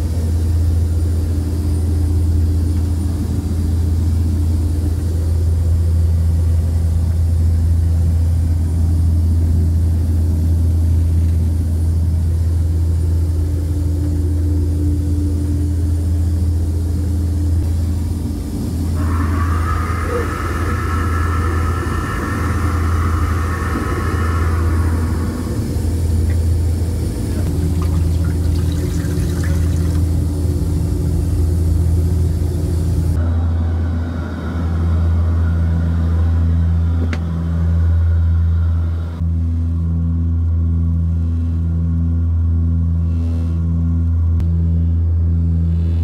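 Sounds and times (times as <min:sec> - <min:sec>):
turboprop engines droning: 0:00.0 - 0:46.0
toilet flushing: 0:27.5 - 0:30.2.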